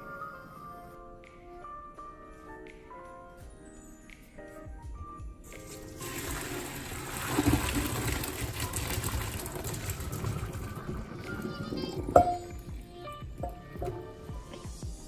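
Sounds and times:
water gushing into a colander: 0:05.5 - 0:14.0.

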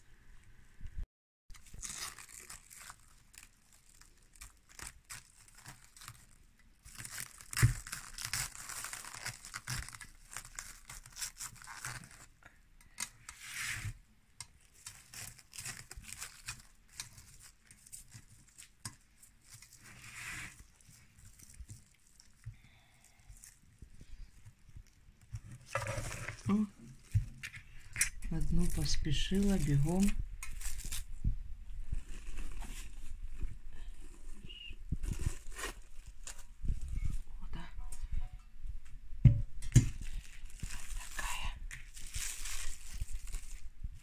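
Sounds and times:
cling film crinkling: 0:01.5 - 0:13.4, 0:14.6 - 0:37.2, 0:39.7 - 0:44.0.

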